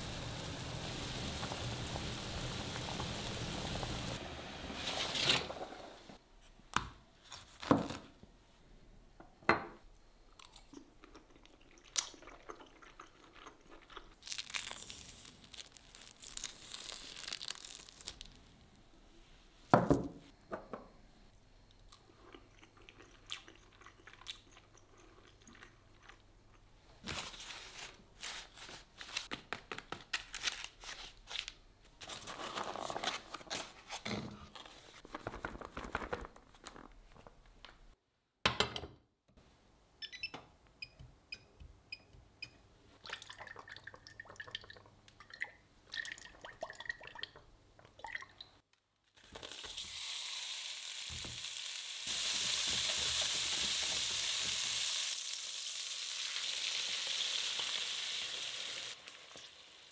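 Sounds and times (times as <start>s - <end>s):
hiss: 49.9s - 59.0s.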